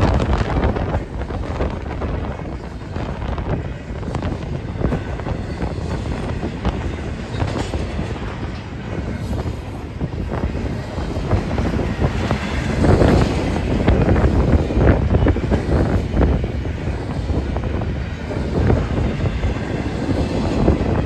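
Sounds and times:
wheels clicking over rail joints: 0.0s - 16.4s
freight train rumble: 0.0s - 21.0s.

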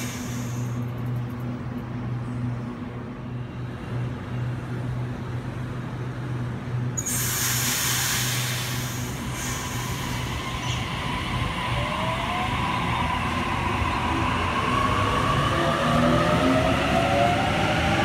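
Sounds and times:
loud hiss: 0.0s - 0.8s, 7.0s - 10.8s
electric train hum: 0.0s - 18.0s.

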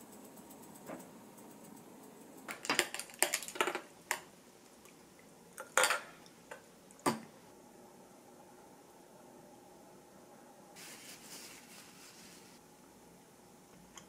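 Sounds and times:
tableware clinking: 5.7s - 6.1s.

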